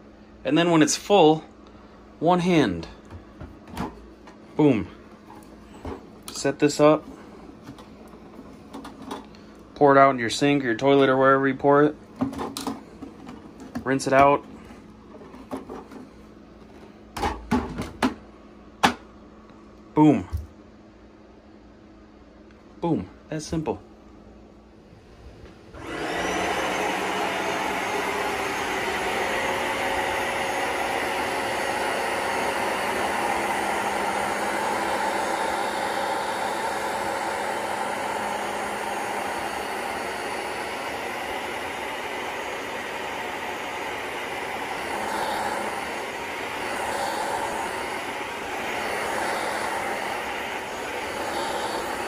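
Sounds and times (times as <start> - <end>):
carpet cleaner motor whirring: 25.7 - 52.0.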